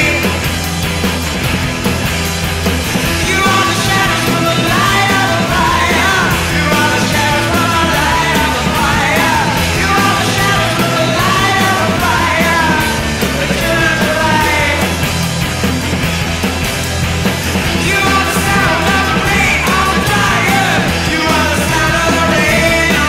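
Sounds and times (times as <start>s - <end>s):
man singing: 0.0s - 0.5s, 3.0s - 15.0s, 17.6s - 23.0s
punk rock band: 0.0s - 23.0s.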